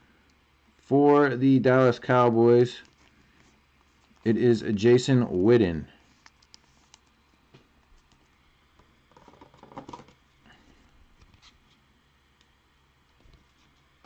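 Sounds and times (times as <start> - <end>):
cards rustling scrape: 2.8 - 4.4, 6.0 - 7.4, 11.2 - 11.9
cards clicking and tapping: 8.8 - 10.2.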